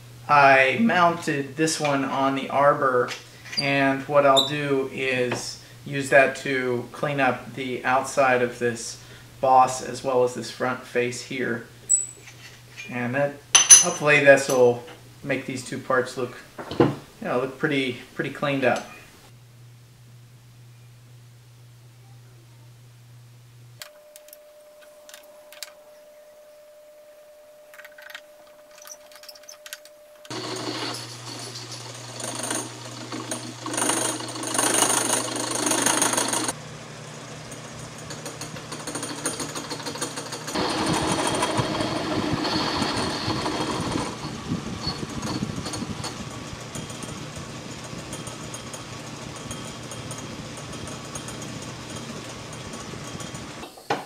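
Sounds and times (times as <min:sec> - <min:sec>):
lathe motor hum: 0:30.2 - 0:53.8
lathe tool cutting metal: 0:30.3 - 0:53.7.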